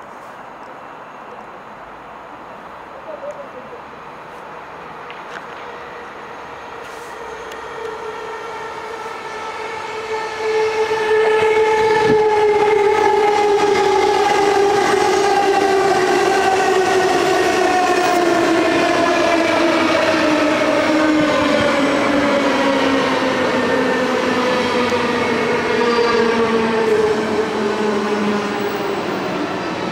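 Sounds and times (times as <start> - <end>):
electric train passing: 0.8 - 29.9.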